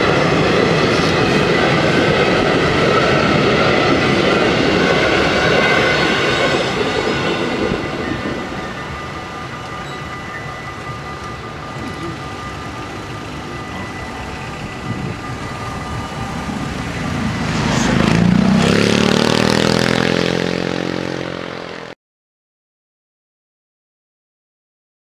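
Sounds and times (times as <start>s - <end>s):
level crossing warning bells: 0.0s - 19.3s
vehicle accelerating past: 16.5s - 21.9s.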